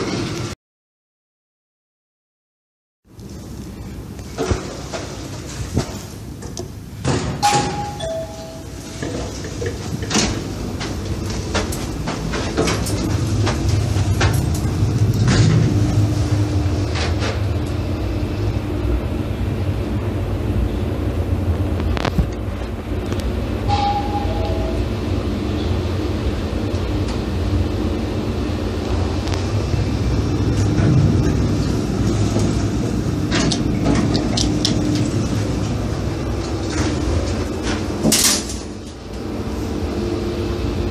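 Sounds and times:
lift low hum: 3.1s - 38.0s
sliding doors with clicks: 4.2s - 17.8s
two-note lift chime: 7.5s - 8.8s, 23.7s - 25.0s.

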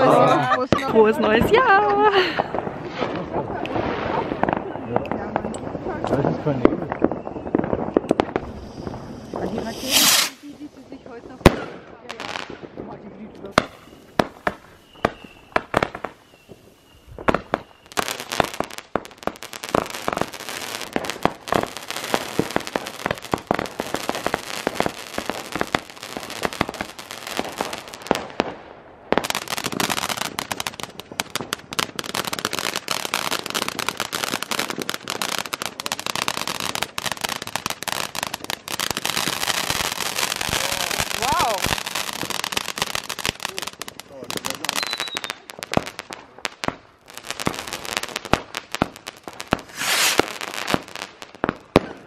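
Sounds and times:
firework bangs: 0.0s - 52.0s
firework crackling pops: 0.6s - 52.0s
faint thin whistle: 44.8s - 45.4s.

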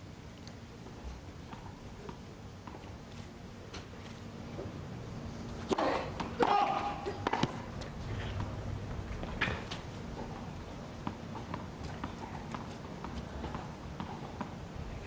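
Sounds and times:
tennis ball hits: 5.7s - 7.6s.

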